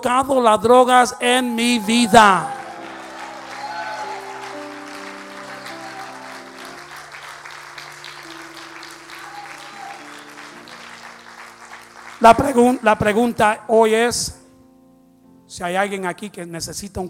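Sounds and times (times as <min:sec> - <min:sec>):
congregation clapping: 0:01.5 - 0:13.4
keyboard playing soft chords: 0:01.8 - 0:16.5.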